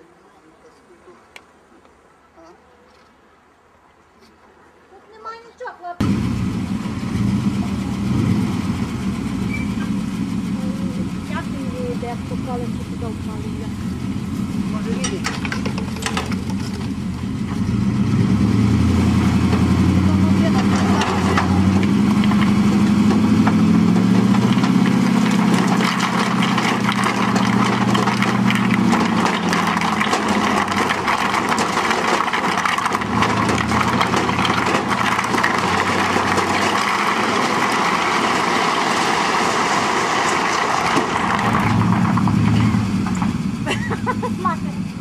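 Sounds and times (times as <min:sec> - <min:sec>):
truck engine running: 0:06.0 - 0:45.0
rocks tumbling onto ground: 0:14.7 - 0:17.6, 0:19.2 - 0:44.2.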